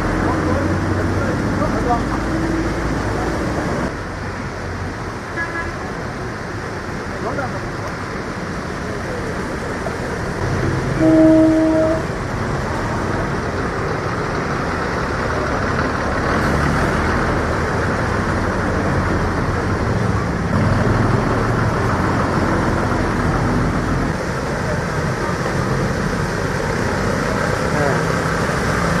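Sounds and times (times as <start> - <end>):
vehicle engines running: 0.0 - 29.0
vehicle horn: 10.9 - 12.1.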